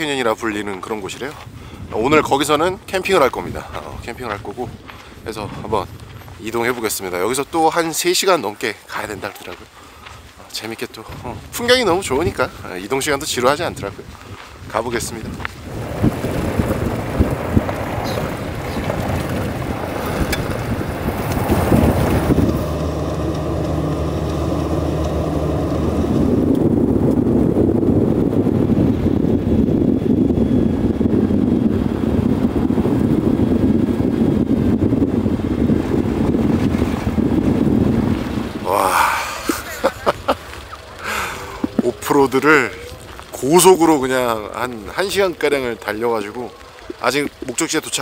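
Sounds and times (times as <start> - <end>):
road rumble: 0.0 - 48.0
wind rushing on microphone: 0.0 - 48.0
car engine hum: 15.7 - 43.3.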